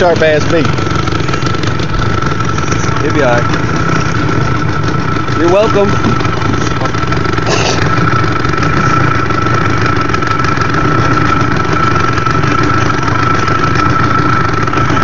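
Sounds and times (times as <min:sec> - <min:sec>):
constant high whine: 0:00.0 - 0:15.0
engine idling: 0:00.0 - 0:15.0.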